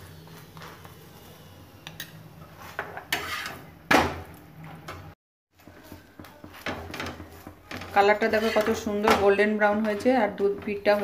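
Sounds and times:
metal spatula scraping a griddle: 0:02.5 - 0:03.7, 0:06.9 - 0:10.2.

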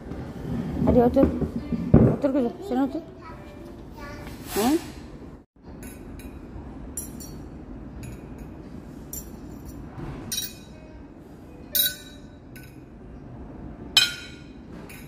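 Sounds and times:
tableware clinking: 0:05.7 - 0:10.9, 0:11.6 - 0:12.9, 0:13.9 - 0:15.0.

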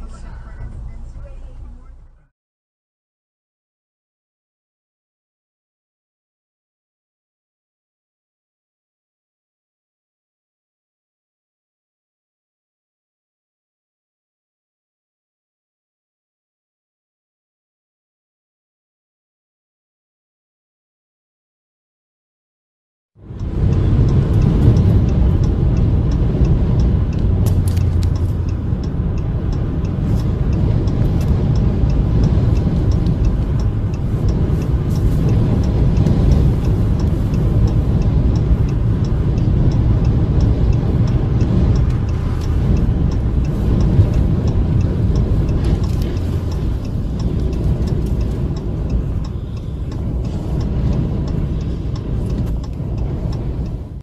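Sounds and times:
road noise: 0:00.0 - 0:02.3, 0:23.2 - 0:54.0
vehicle rumble on highway: 0:00.0 - 0:02.3, 0:23.2 - 0:54.0
wind buffeting: 0:23.2 - 0:54.0
faint light ticks: 0:23.3 - 0:54.0.

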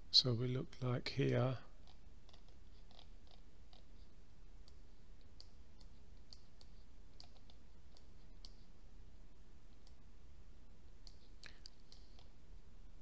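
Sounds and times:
faint low hum: 0:00.0 - 0:13.0
computer mouse clicking: 0:00.7 - 0:03.9, 0:04.6 - 0:08.7, 0:09.8 - 0:10.0, 0:11.0 - 0:12.3.

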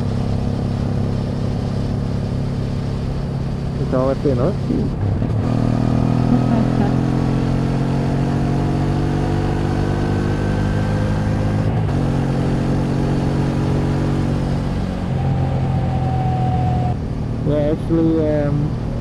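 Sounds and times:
wind and road noise: 0:00.0 - 0:19.0
motorcycle engine running: 0:05.7 - 0:07.8.

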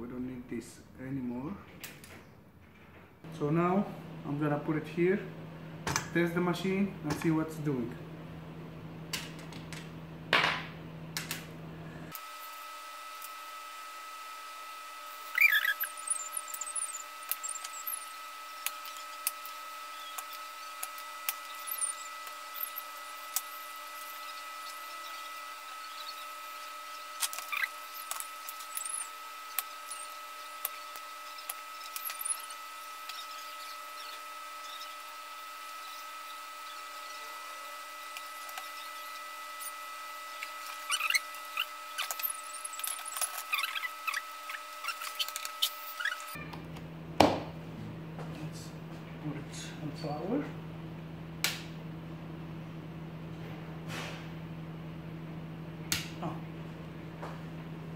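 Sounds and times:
high-pitched whine: 0:14.1 - 0:46.4.

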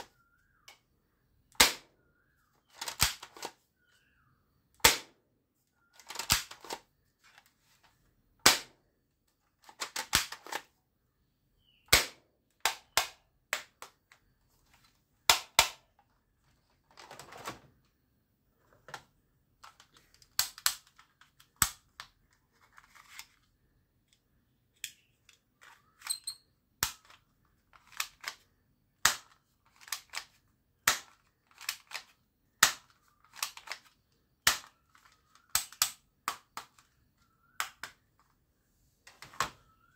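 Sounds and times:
plastic toy guns clacking: 0:02.7 - 0:03.6, 0:06.0 - 0:06.8, 0:09.6 - 0:10.7, 0:15.3 - 0:15.9, 0:19.6 - 0:22.2, 0:24.8 - 0:38.0.

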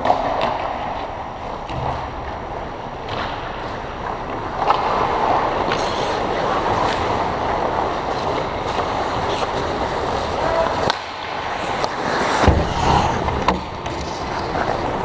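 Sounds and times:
sticks and puck clacking: 0:00.0 - 0:15.0
skate blades scraping ice: 0:03.1 - 0:15.0.

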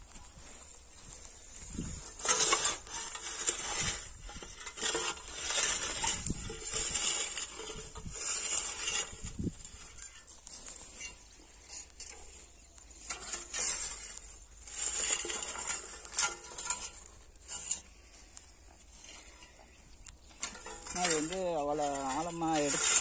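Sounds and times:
weeder scraping through soil: 0:00.0 - 0:23.0
metal blade and frame rattling: 0:14.8 - 0:17.9, 0:20.2 - 0:23.0.

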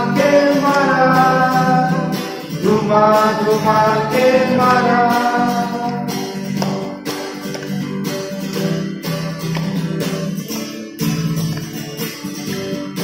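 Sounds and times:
acoustic guitar strumming: 0:00.0 - 0:13.0.

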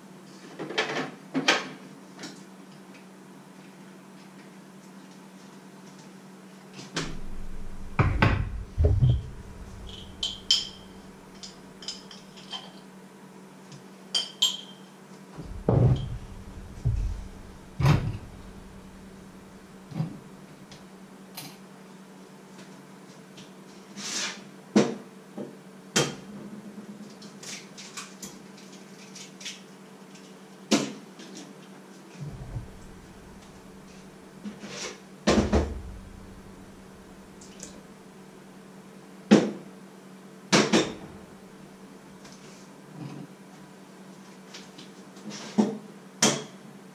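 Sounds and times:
faint low hum: 0:07.0 - 0:12.3, 0:15.4 - 0:20.9, 0:32.2 - 0:34.5, 0:35.3 - 0:38.5.

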